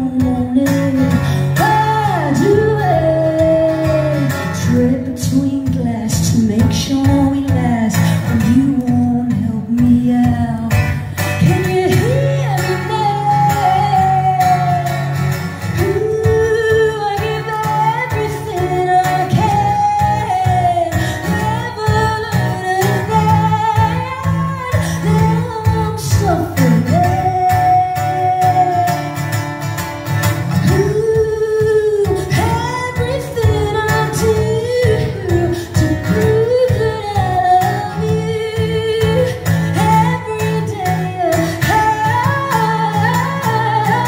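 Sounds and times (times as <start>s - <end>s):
acoustic guitar: 0.0s - 44.0s
woman singing into microphone: 0.0s - 44.0s.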